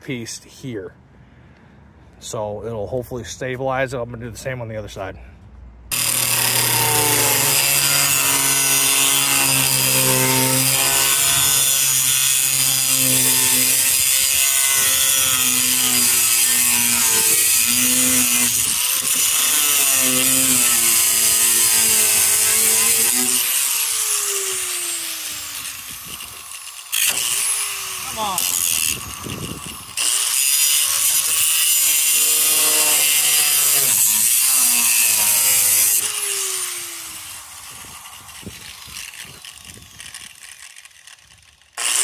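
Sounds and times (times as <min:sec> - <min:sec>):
angle grinder cutting metal: 0:05.9 - 0:42.0.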